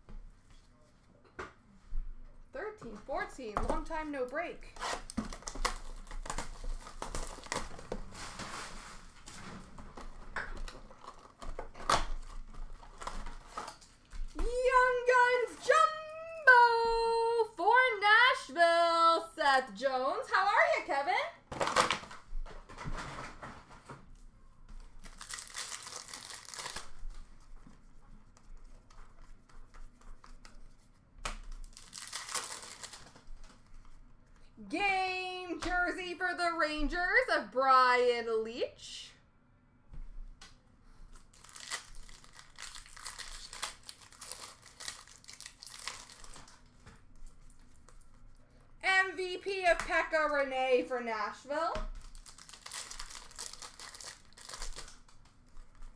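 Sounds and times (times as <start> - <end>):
cardboard tearing: 4.7 - 9.4, 25.1 - 27.0, 31.6 - 33.1, 41.3 - 46.5, 52.0 - 55.0
cardboard rustling and crinkling: 4.8 - 14.8, 51.9 - 55.9
cards rustling and clicking: 29.8 - 33.9.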